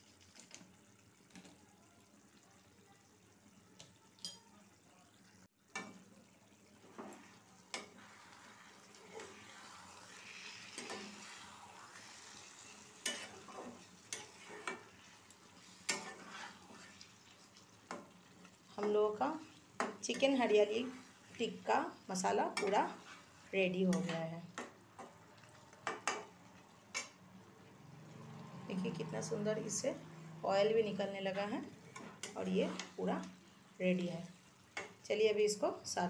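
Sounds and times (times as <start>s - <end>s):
curry sizzling in a pan: 0.0s - 36.0s
spatula clicking and scraping pan: 5.7s - 6.1s, 6.8s - 21.4s, 22.4s - 27.2s, 31.7s - 33.4s, 34.7s - 35.0s.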